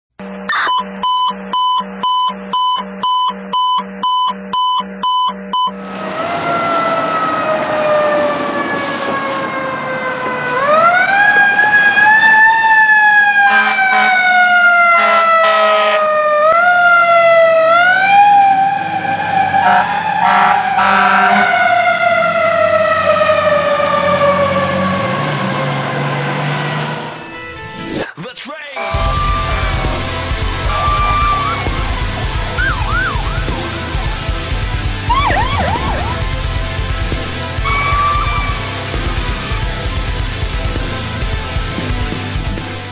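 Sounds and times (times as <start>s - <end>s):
electronic beeps: 0.2s - 5.8s, 28.8s - 31.8s
fire engine siren: 5.0s - 27.6s, 28.8s - 40.9s
short horn blasts: 13.5s - 14.2s, 15.0s - 16.0s, 19.6s - 21.5s, 28.8s - 31.8s, 37.6s - 38.8s
low engine rumble: 28.9s - 41.8s.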